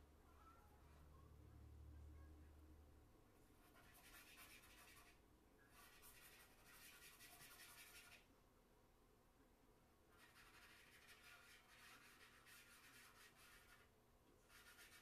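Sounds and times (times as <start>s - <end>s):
faint low hum: 0.0s - 15.0s
charcoal scratching on paper: 3.6s - 8.3s, 10.1s - 15.0s.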